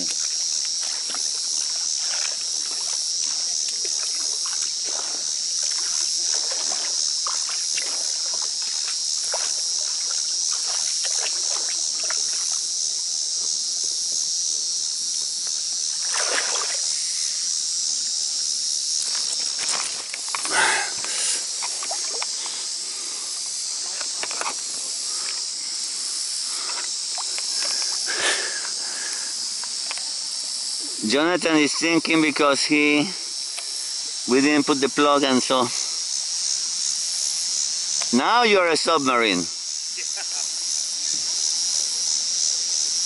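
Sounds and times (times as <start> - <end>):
high chorus of insects: 0.0 - 43.0
water sloshing and splashing: 0.1 - 12.6, 16.0 - 16.9, 19.2 - 22.6.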